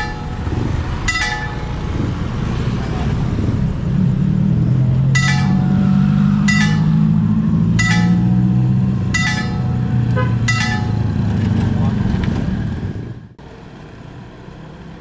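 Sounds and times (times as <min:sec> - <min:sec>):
level crossing warning bell: 0:00.0 - 0:02.0, 0:05.1 - 0:11.2
vehicle engine droning: 0:00.0 - 0:15.0.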